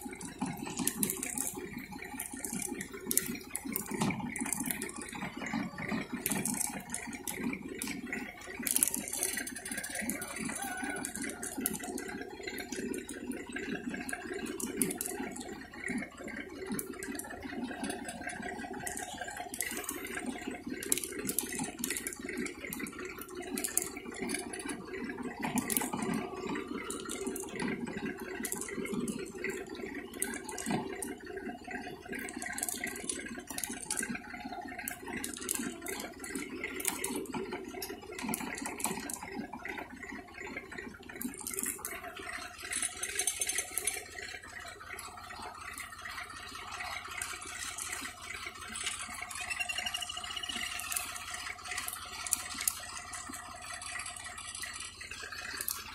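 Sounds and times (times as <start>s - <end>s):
seed drill rattling: 0.0s - 55.9s.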